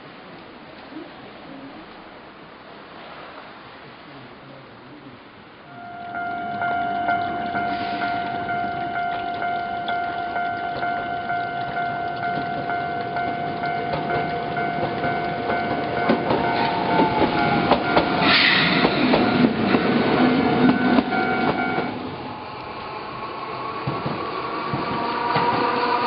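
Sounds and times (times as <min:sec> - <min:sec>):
level crossing bell ringing: 0:05.7 - 0:18.3, 0:20.7 - 0:22.0
tram motor hum: 0:05.7 - 0:26.0
tram wheels knocking on rail joints: 0:06.1 - 0:22.0, 0:23.8 - 0:26.0.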